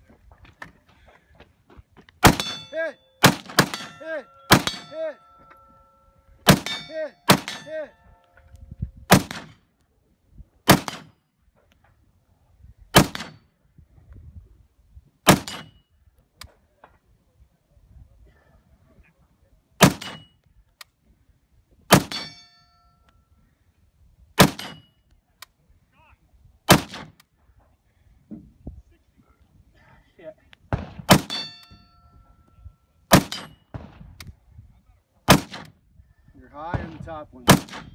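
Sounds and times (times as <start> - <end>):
rifle shots with echo: 2.2 - 5.1, 6.4 - 7.8, 9.1 - 9.6, 10.6 - 11.2, 12.9 - 13.4, 15.2 - 15.7, 19.8 - 20.2, 21.9 - 22.4, 24.4 - 24.9, 26.7 - 27.2, 30.7 - 31.8, 33.1 - 34.1, 35.3 - 35.8, 36.7 - 37.9
steel target ringing: 2.3 - 8.1, 22.1 - 23.0, 31.2 - 32.2.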